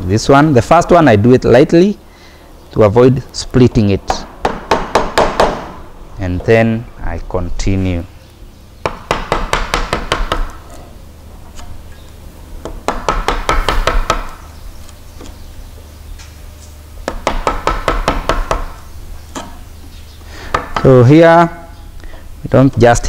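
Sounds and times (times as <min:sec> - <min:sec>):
wooden mallet tapping chisel: 0:12.6 - 0:14.4, 0:17.0 - 0:18.7, 0:20.5 - 0:21.0.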